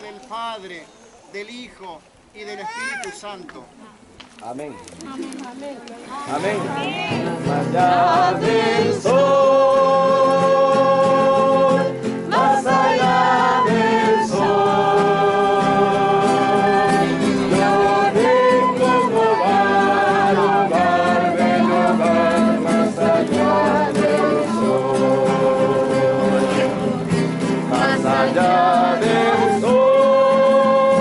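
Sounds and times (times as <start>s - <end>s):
guitar accompaniment: 6.0s - 31.0s
person singing religious song: 7.4s - 26.9s, 27.6s - 31.0s.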